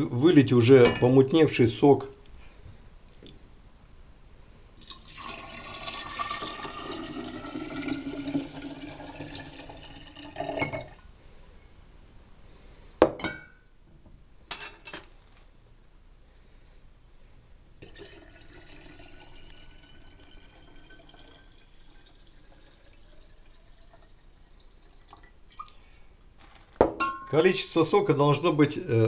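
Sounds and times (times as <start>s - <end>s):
liquid pouring into glass jar: 4.8s - 11.1s, 17.8s - 25.8s
glass clinks: 26.8s - 27.4s.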